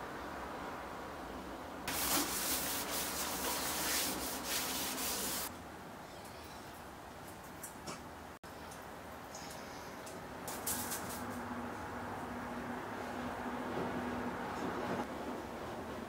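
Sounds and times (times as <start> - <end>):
wipe rubbing on metal: 1.9 - 5.5.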